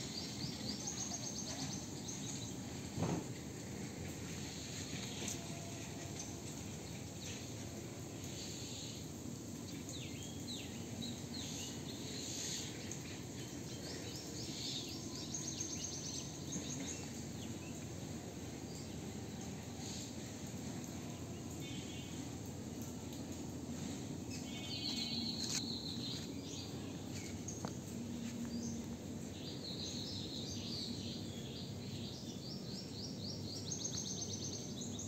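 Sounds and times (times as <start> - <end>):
birds chirping: 24.3 - 31.8.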